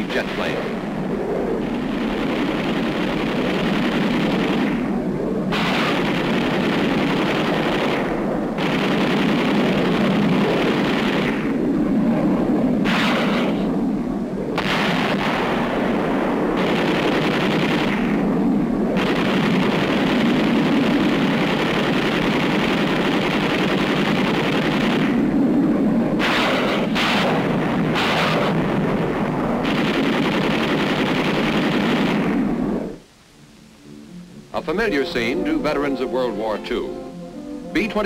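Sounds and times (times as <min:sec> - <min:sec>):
steady low rumble: 0:00.0 - 0:38.0
machine-gun fire bursts: 0:01.6 - 0:11.6, 0:12.8 - 0:13.7, 0:14.6 - 0:16.0, 0:16.6 - 0:18.3, 0:19.0 - 0:25.3, 0:26.2 - 0:32.6.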